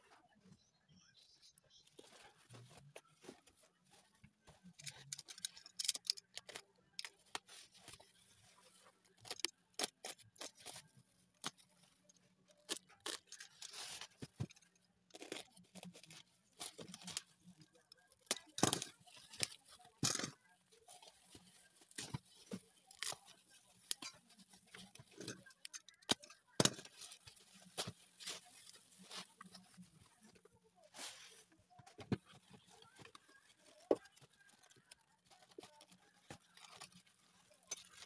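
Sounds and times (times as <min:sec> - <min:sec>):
bubble wrap crinkling and tearing: 0:32.1 - 0:38.0.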